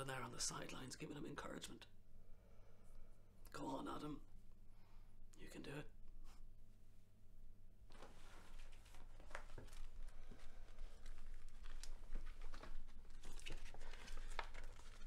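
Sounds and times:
low room hum: 0.0s - 15.0s
rustling and crinkling with clicks: 7.9s - 15.0s.

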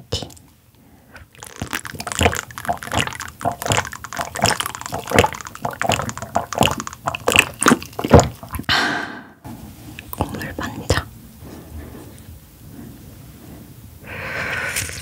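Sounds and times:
wet chewing squelches: 1.2s - 8.7s.

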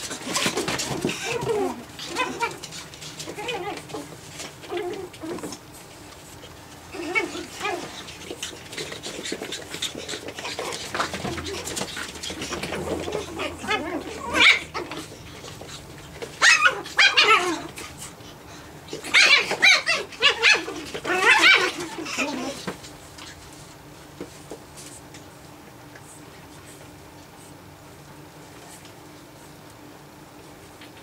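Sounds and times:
puppies yipping and barking: 0.2s - 5.6s, 6.8s - 22.8s.

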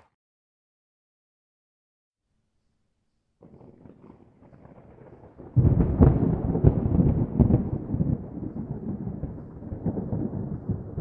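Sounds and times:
rolling thunder rumble: 3.4s - 11.0s
thunder clap and cracks: 3.4s - 11.0s.

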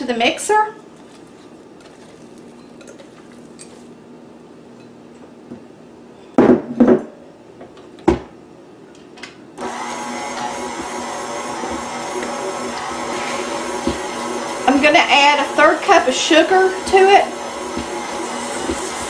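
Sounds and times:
stand mixer motor running: 9.6s - 19.0s.

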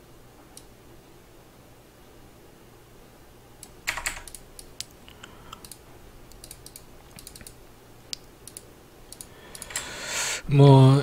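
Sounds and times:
keyboard keys clicking: 3.6s - 7.6s.

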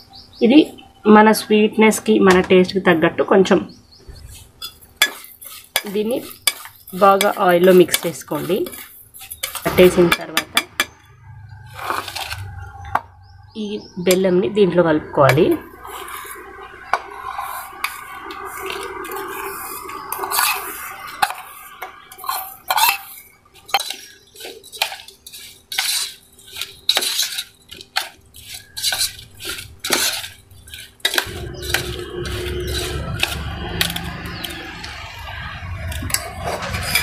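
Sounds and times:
spoon scraping metal bowl: 4.1s - 13.0s, 14.1s - 37.0s.

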